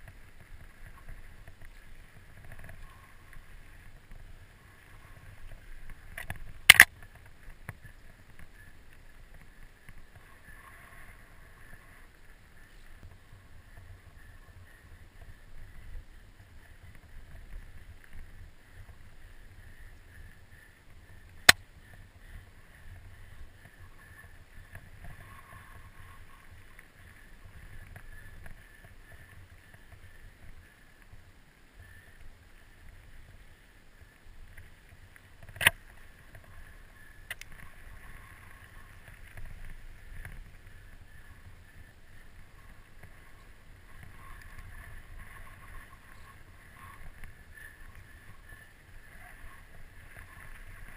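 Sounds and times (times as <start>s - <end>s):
bike tyre and rattle noise: 0.0s - 50.9s.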